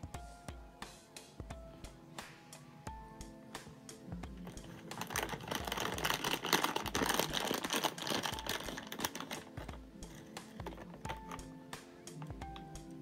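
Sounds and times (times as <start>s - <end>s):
plastic wrapper crinkling: 4.4s - 11.4s.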